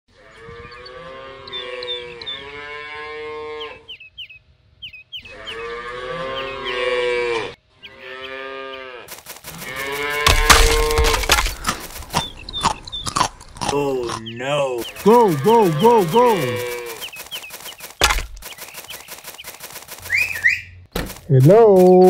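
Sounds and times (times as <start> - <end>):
cattle mooing: 0.2 - 3.9, 5.2 - 11.3, 14.9 - 17.0
loud crackling noise: 9.1 - 12.8, 14.7 - 22.0.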